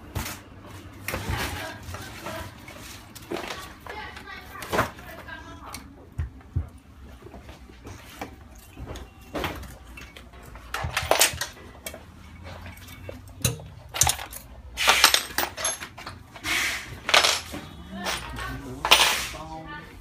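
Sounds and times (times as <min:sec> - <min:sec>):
metallic clinks and scrapes: 0:09.7 - 0:19.4.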